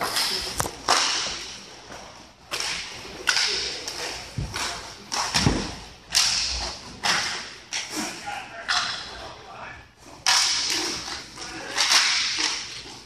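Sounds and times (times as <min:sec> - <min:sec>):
puck striking boards: 0:00.0 - 0:01.5, 0:02.5 - 0:07.8, 0:10.2 - 0:13.0
sticks cracking on puck: 0:00.0 - 0:01.6, 0:02.5 - 0:07.9, 0:10.2 - 0:13.0.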